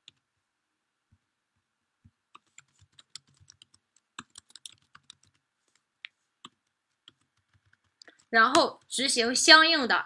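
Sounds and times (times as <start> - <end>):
typing on computer keyboard: 2.4 - 5.4, 6.4 - 9.0.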